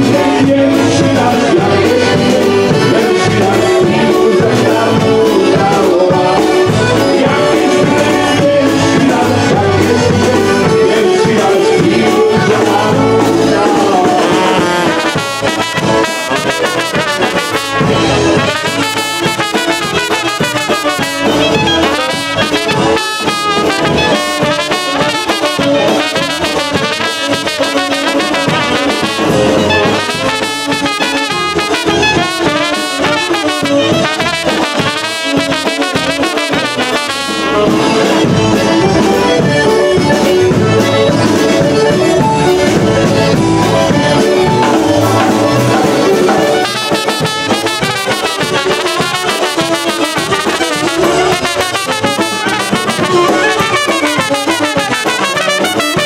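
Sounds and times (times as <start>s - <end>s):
horn section melody: 0.0s - 56.0s
polka band playing: 0.0s - 56.0s.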